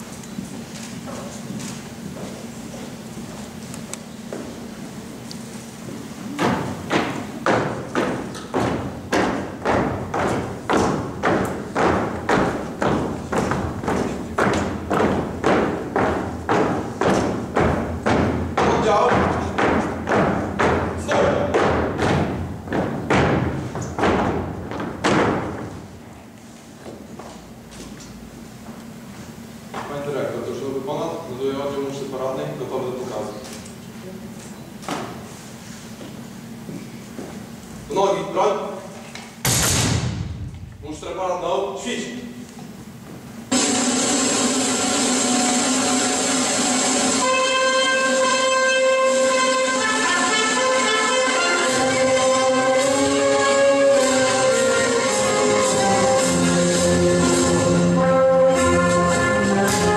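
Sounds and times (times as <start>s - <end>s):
loud music over sound system: 43.5s - 59.9s.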